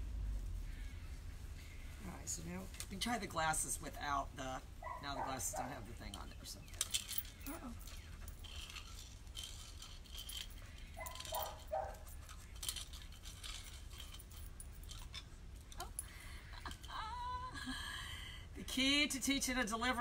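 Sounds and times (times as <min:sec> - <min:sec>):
small hard objects clinking: 0:05.3 - 0:17.0.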